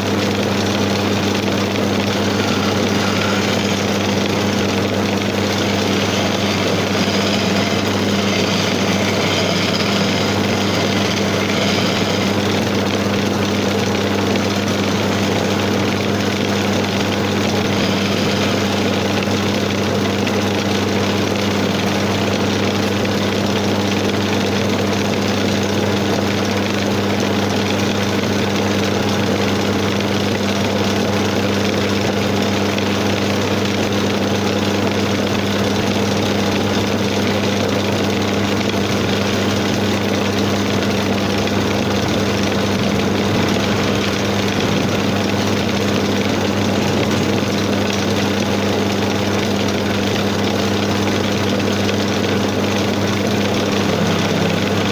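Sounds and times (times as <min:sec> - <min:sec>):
chisel cutting spinning wood: 0:00.0 - 0:24.9, 0:27.4 - 0:54.9
lathe motor humming: 0:00.0 - 0:54.9.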